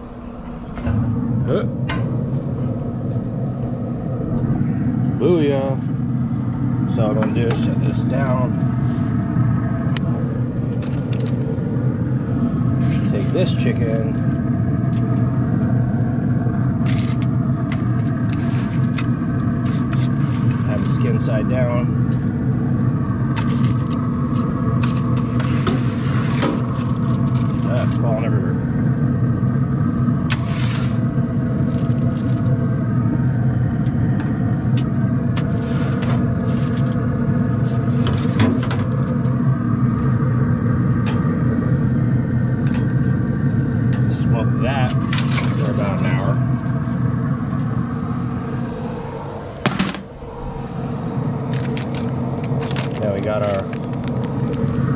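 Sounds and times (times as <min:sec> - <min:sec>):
grill fan droning: 0:00.0 - 0:54.9
steady machine hum: 0:00.0 - 0:54.9
aluminium foil crinkling: 0:51.6 - 0:54.8.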